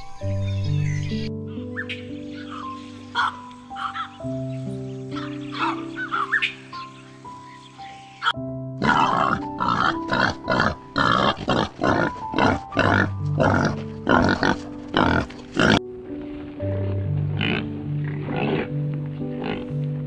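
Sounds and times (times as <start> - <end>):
wild boars grunting: 8.8 - 15.8, 16.9 - 19.8.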